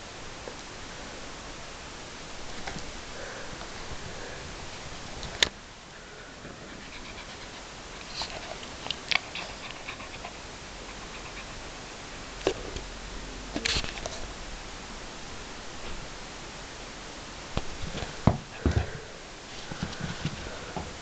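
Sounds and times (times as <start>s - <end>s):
dog panting: 6.5s - 12.0s
dog moving on carpet: 17.7s - 21.0s.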